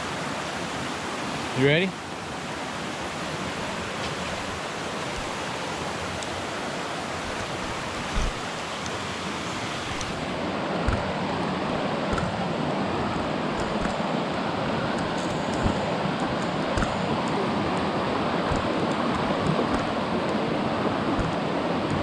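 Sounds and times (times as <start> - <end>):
water rushing over rocks: 0.0 - 22.0
low thumps: 7.3 - 8.5, 10.8 - 11.2.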